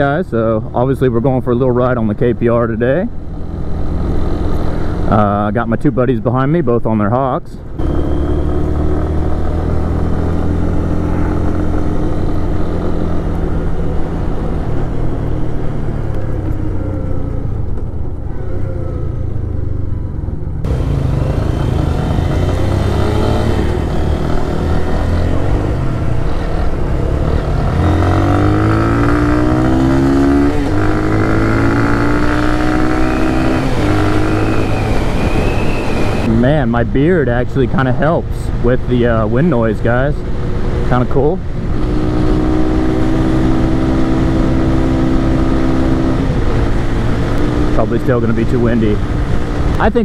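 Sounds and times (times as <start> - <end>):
motorcycle engine accelerating: 2.8 - 5.4, 7.6 - 50.0
wind rushing: 21.3 - 36.3.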